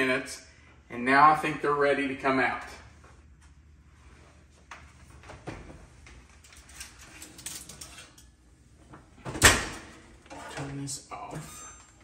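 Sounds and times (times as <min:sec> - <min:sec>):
metal rack scraping: 0:06.5 - 0:08.4, 0:10.2 - 0:12.0.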